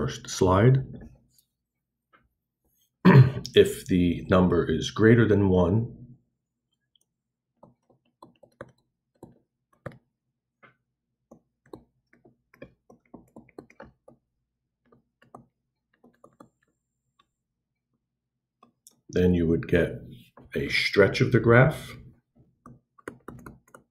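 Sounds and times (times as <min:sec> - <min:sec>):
stylus tapping on tablet screen: 0:07.0 - 0:17.4, 0:22.4 - 0:23.9.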